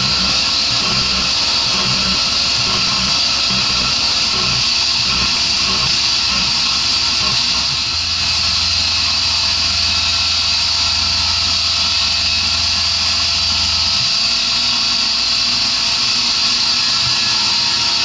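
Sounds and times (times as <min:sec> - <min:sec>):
low hum: 0:00.0 - 0:14.2
milling machine cutting metal: 0:00.0 - 0:18.0.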